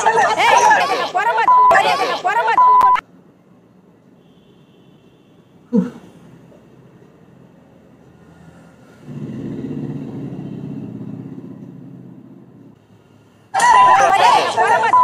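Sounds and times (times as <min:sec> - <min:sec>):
people shouting: 0:00.0 - 0:02.6, 0:13.6 - 0:15.0
beep: 0:01.5 - 0:01.9, 0:02.6 - 0:03.0, 0:13.6 - 0:14.1
passing motor vehicle rumble: 0:06.2 - 0:13.4.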